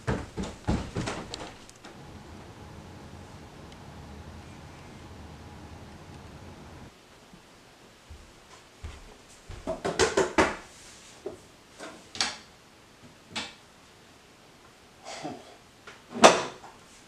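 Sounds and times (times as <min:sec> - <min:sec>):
wooden cabinet doors knocking: 0:00.0 - 0:01.4.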